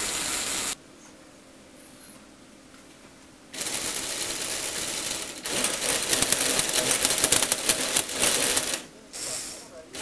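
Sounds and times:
electric motor whirring: 0:00.0 - 0:00.8, 0:03.6 - 0:08.9
plastic gears rattling: 0:03.6 - 0:08.9.

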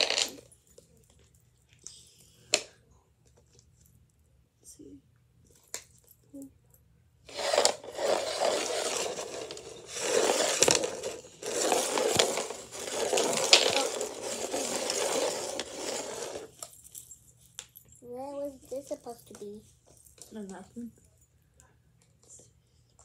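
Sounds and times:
plastic packaging crinkling and tearing: 0:07.3 - 0:16.3.

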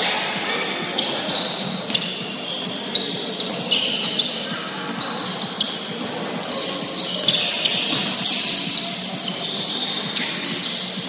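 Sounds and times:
sneakers squeaking on gym floor: 0:00.0 - 0:11.0
basketball bouncing on floor: 0:07.3 - 0:08.4.

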